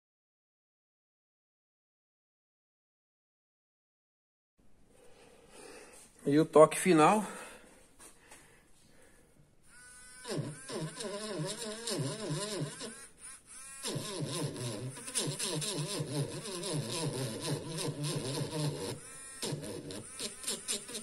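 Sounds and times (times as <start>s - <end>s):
engraving pen buzzing on steel: 9.7s - 21.0s.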